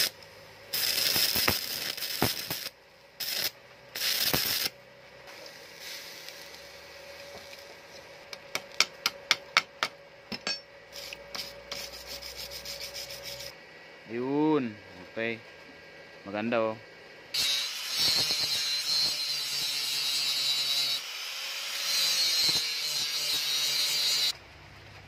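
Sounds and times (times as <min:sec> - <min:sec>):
arc welding crackling: 0:00.0 - 0:09.4, 0:17.4 - 0:24.4
faint steady hum: 0:00.0 - 0:19.5.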